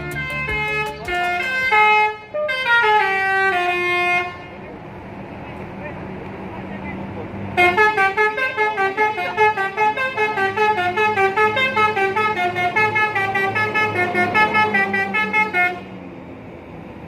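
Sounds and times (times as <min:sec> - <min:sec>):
multi-tone bus horn melody: 0:00.0 - 0:04.6, 0:07.6 - 0:16.0.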